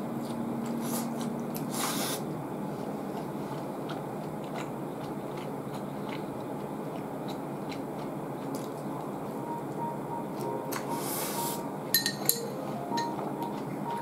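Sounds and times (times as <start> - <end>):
steady low hum: 0.0 - 14.0
person chewing food: 0.2 - 11.5.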